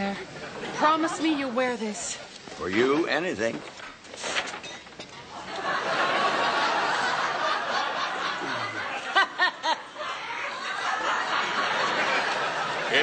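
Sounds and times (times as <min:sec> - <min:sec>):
studio audience laughing: 0:05.3 - 0:13.0.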